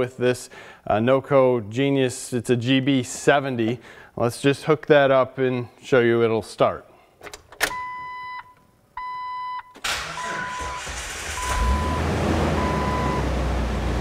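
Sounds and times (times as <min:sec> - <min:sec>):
car engine cranking and running: 0:09.8 - 0:14.0.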